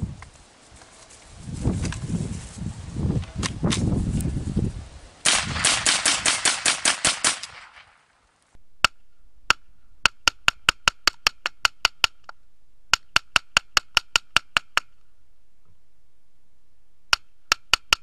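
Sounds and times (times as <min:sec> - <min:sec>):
rifle firing rapid shots: 0:05.2 - 0:08.0.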